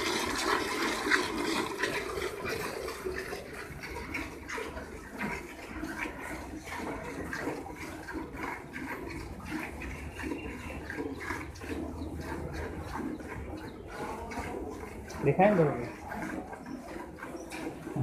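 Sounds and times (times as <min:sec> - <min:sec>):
milk squirting into steel bucket: 0:00.0 - 0:18.0.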